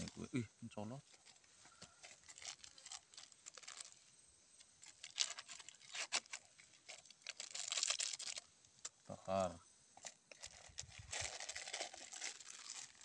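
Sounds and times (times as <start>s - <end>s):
scraping and crackling of spice paste: 1.1s - 4.0s, 4.6s - 9.0s, 10.0s - 13.0s.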